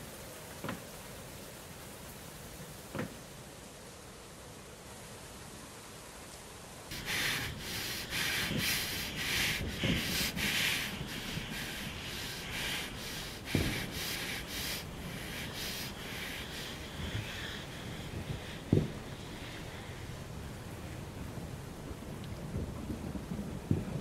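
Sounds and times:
dull low thumps: 6.9 - 19.5
fast frightened breathing: 6.9 - 20.4.

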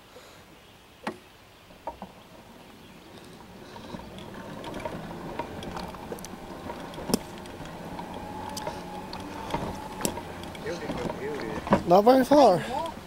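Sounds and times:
engine humming: 1.7 - 13.0
sharp clicks and knocks: 3.7 - 12.0.

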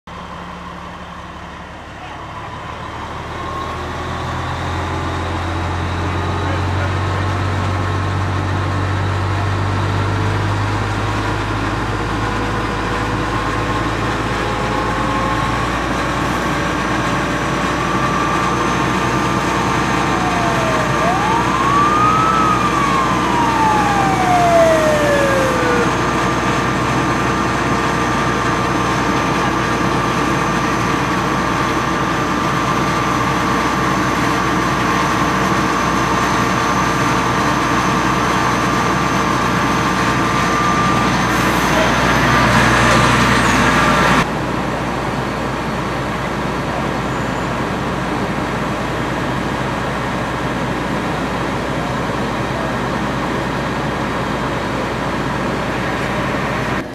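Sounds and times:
heavy engine running: 0.1 - 56.9
siren wailing: 12.4 - 27.8, 35.8 - 44.3.

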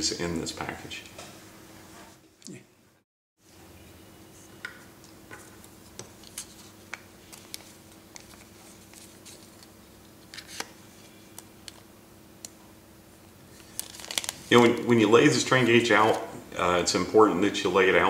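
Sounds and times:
plastic packet crinkling: 6.2 - 10.7, 13.6 - 16.2.

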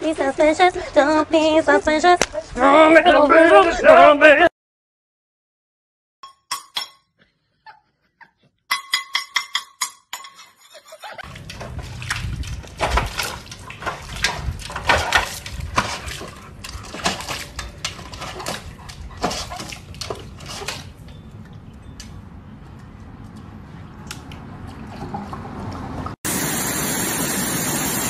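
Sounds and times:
ringing clinks: 8.7 - 10.5
dog splashing in metal water bowl: 11.2 - 21.1.

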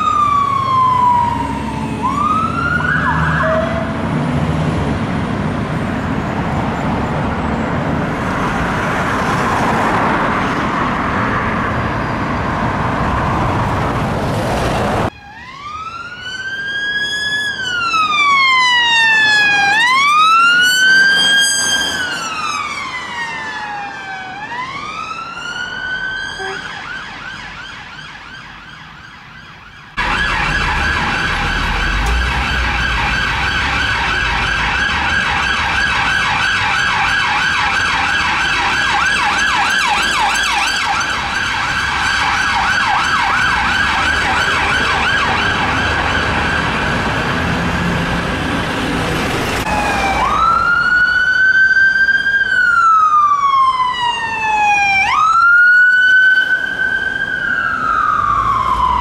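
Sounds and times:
police siren wailing and yelping: 0.0 - 4.0, 15.1 - 47.9, 49.6 - 59.0
engine and road noise: 0.0 - 59.0
fire engine siren wailing: 0.0 - 59.0.

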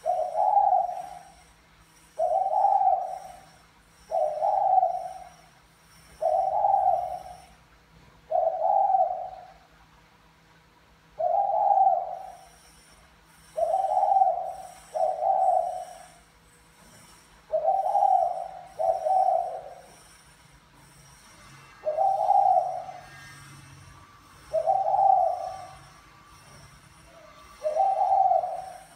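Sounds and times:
dove cooing: 0.0 - 1.5, 2.2 - 5.4, 6.2 - 7.6, 8.3 - 9.7, 11.2 - 12.6, 13.5 - 16.2, 17.5 - 20.0, 21.7 - 28.9
faint high bird chirps: 0.0 - 7.6, 11.2 - 16.3, 17.5 - 20.1, 20.9 - 28.9.

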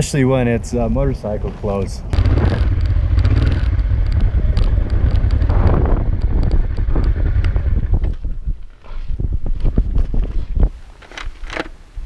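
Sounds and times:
wind rumble on microphone: 1.0 - 12.0
motorcycle riding on gravel: 1.7 - 10.5.

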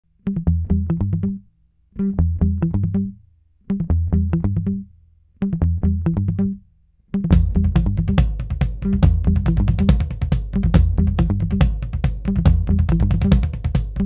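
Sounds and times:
bass line: 0.3 - 3.2, 3.8 - 14.0
plucked string riff: 7.2 - 14.0.

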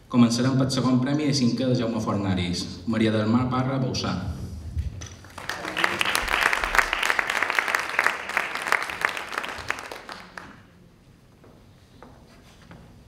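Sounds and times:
audience clapping: 5.0 - 10.7.

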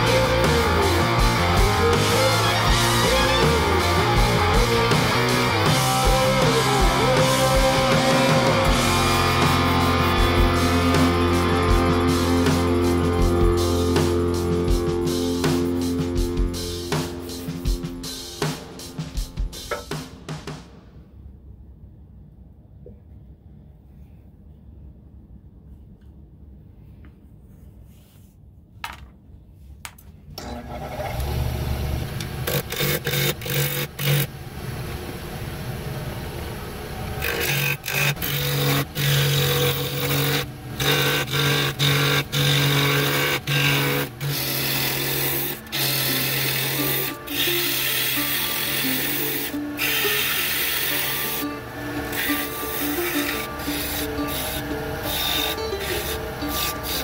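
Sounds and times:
lathe tool cutting wood: 0.0 - 12.8, 30.4 - 35.7, 36.5 - 57.0
background music: 0.0 - 20.9, 37.2 - 57.0.

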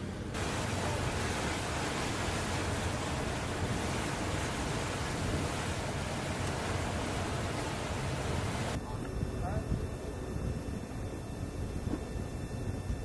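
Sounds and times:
water spray: 0.3 - 8.8.

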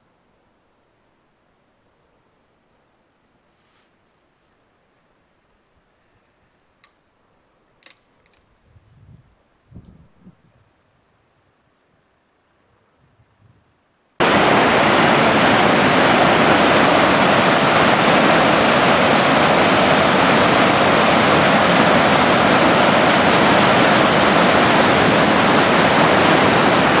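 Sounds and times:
creek rushing over rocks: 14.2 - 27.0.

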